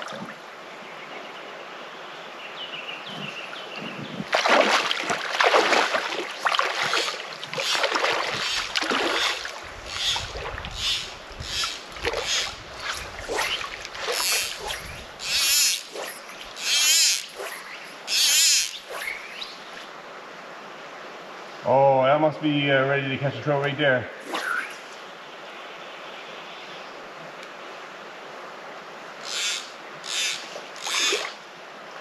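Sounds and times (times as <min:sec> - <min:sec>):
river water splashing: 0:00.0 - 0:00.8, 0:03.4 - 0:21.4, 0:27.8 - 0:32.0.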